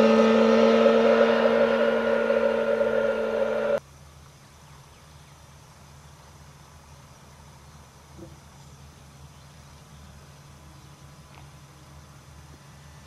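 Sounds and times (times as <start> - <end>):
loud motor whine: 0.0 - 3.8
low steady hum: 0.0 - 3.8.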